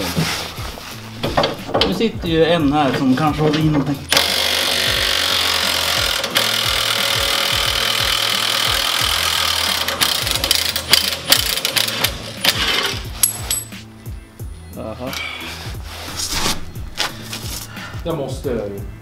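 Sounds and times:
background music with beat: 0.0s - 19.0s
power tool running: 4.1s - 13.0s.

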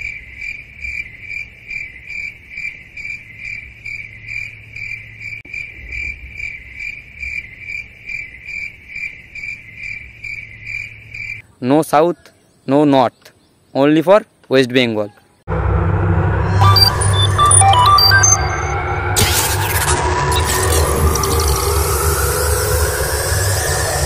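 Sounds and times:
cricket chirping: 0.0s - 11.4s.

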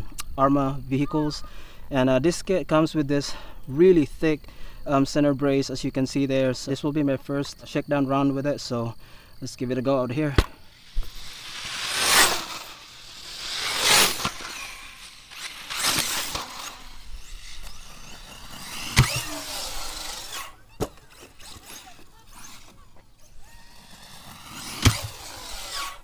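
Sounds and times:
electric motor whining: 10.7s - 26.0s.

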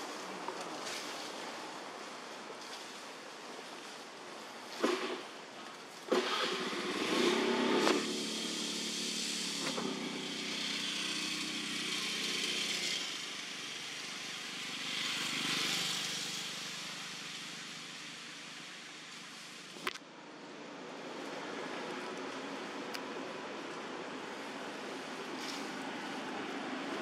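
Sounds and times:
vehicle engine running: 6.1s - 19.8s.

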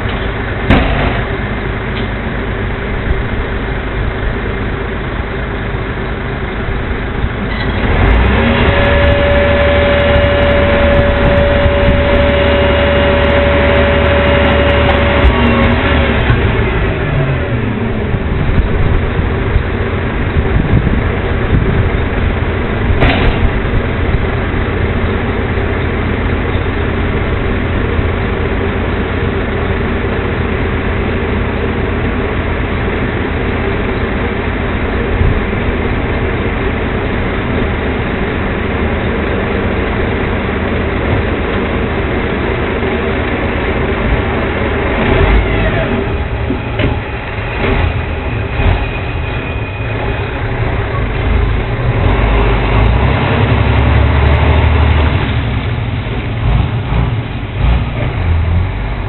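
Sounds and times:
truck clunks: 0.0s - 2.2s, 21.5s - 24.2s, 44.0s - 48.8s
garbage truck engine running: 0.0s - 59.0s
short rising whine: 2.4s - 56.1s.

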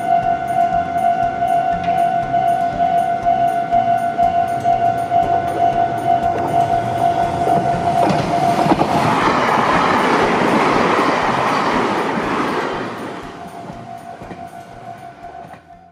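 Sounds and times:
level crossing warning bell: 0.0s - 15.9s
train wheels clattering over rails: 4.4s - 15.8s.

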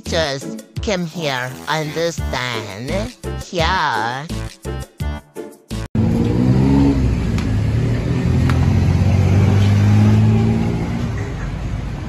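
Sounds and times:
vehicle engine droning: 6.0s - 12.0s.

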